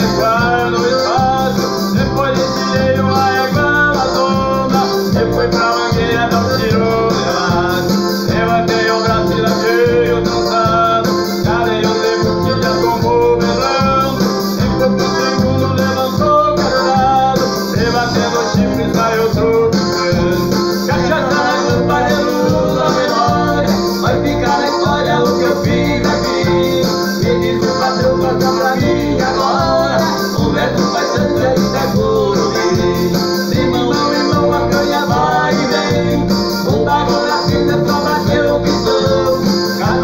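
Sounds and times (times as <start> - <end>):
acoustic guitar: 0.0 - 40.0
electronic keyboard: 0.0 - 40.0
man singing: 0.0 - 40.0
steady beat: 0.0 - 40.0.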